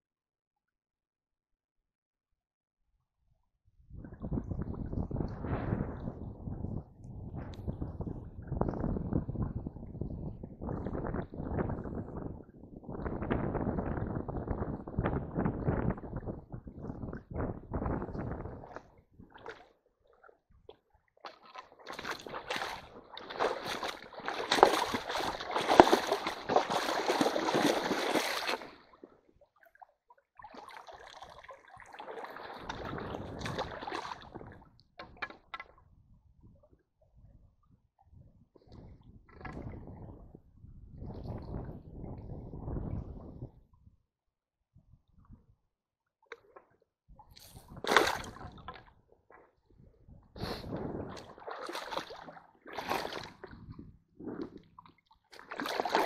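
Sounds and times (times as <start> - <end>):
water splashing and sloshing: 3.9 - 37.4, 38.0 - 40.4, 46.2 - 56.0
water splashing from wading: 21.2 - 29.8, 30.4 - 35.1, 47.7 - 48.8, 50.4 - 53.6, 54.6 - 56.0
net sloshing and draining: 21.2 - 34.7, 47.4 - 48.8, 50.6 - 53.7, 54.3 - 56.0.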